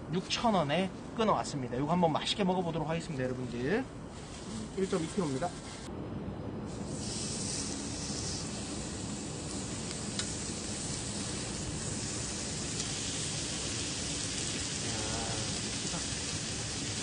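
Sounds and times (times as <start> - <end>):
meat sizzling on grill pan: 6.9 - 17.0.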